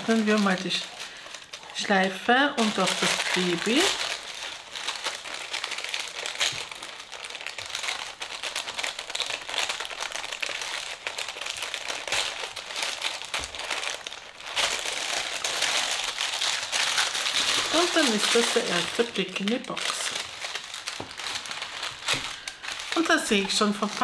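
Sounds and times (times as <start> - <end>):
paper wrapping crinkling: 0.0 - 24.0.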